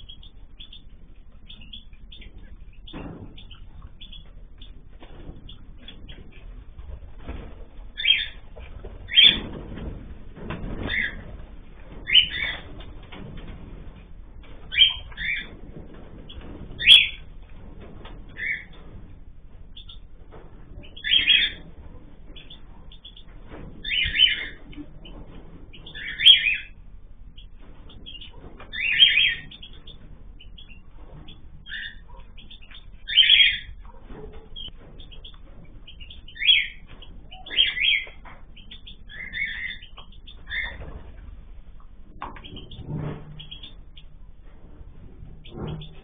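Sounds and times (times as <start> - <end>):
cockatiels calling: 0.0 - 4.8, 7.3 - 9.6, 10.8 - 11.3, 12.0 - 12.8, 14.7 - 15.6, 16.2 - 17.2, 18.3 - 18.8, 19.7 - 20.1, 20.7 - 21.7, 22.3 - 26.8, 27.4 - 41.0, 42.2 - 44.1.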